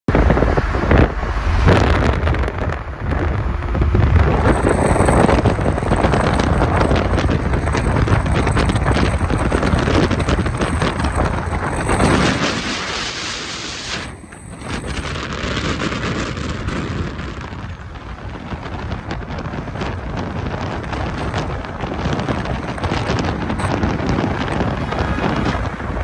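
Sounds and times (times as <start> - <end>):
vehicle rushing at speed: 0.1 - 26.0
wind buffeting microphone: 0.1 - 26.0.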